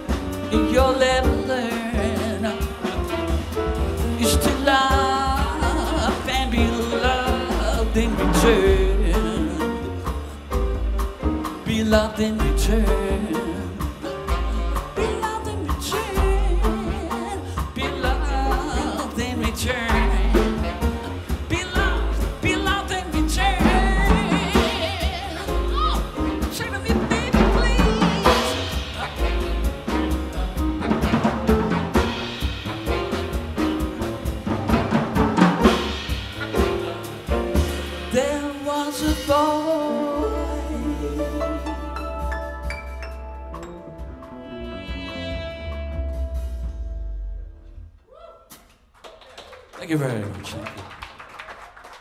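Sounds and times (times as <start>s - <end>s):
drum strikes: 0.0s - 39.8s
jazz band playing: 0.0s - 47.9s
double bass notes: 0.0s - 48.0s
person singing with vibrato: 4.2s - 10.4s, 11.6s - 30.1s, 36.4s - 42.2s.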